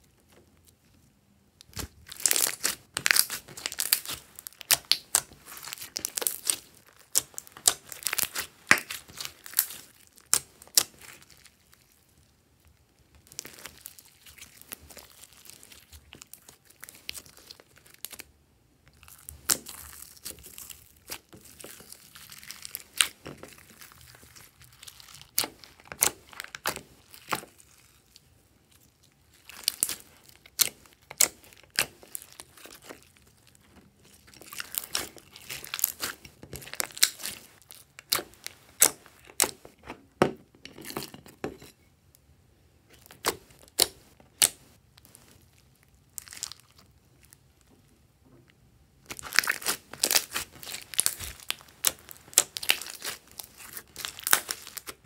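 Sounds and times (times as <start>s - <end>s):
slime crackling and popping: 1.6s - 12.0s, 18.9s - 39.7s, 43.0s - 47.4s, 49.0s - 55.0s.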